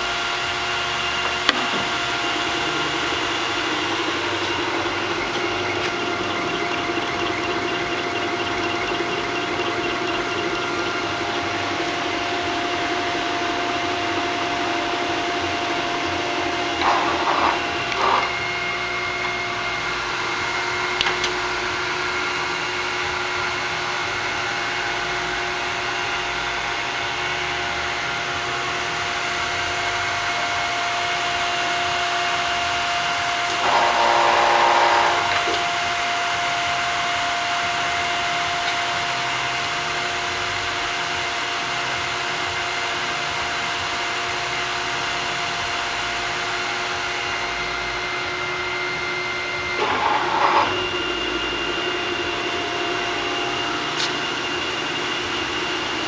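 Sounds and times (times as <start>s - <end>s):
grinder machine humming: 0.0s - 56.0s.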